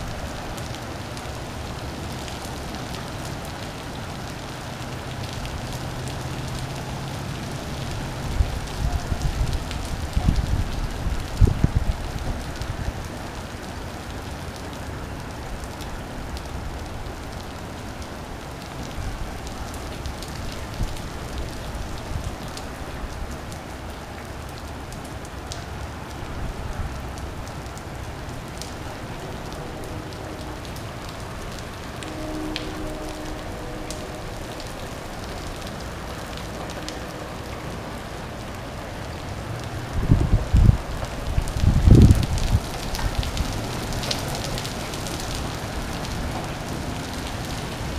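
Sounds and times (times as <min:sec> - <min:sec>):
rain on pavement and lawn: 0:00.0 - 0:47.9.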